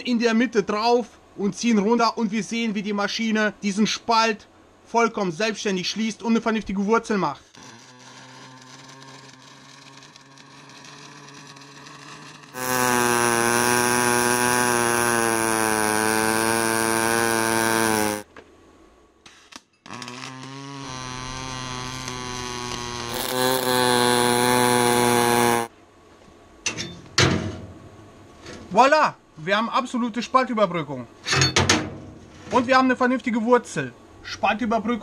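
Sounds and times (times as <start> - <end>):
welding arc buzzing: 7.5 - 18.3, 19.8 - 25.7.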